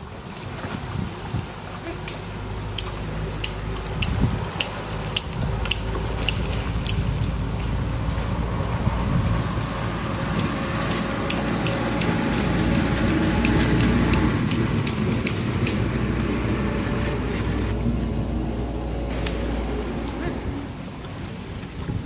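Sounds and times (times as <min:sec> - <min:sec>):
thin high whine: 0:00.0 - 0:22.0
water sloshing and splashing: 0:00.0 - 0:22.0
sharp clicks: 0:02.0 - 0:07.1, 0:10.3 - 0:16.4
low rumble: 0:02.3 - 0:22.0.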